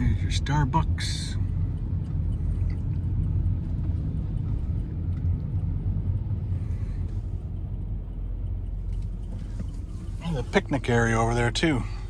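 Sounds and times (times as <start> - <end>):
car engine rumble and road noise: 0.0 - 12.0.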